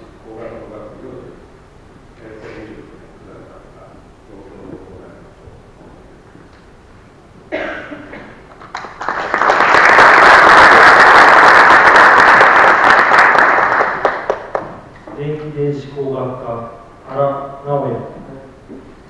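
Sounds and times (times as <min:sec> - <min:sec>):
audience applause: 0:08.5 - 0:14.8.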